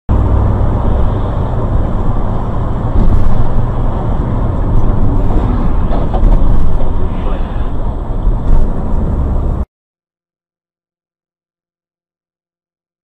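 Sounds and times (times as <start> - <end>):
car engine and road noise: 0.1 - 9.7.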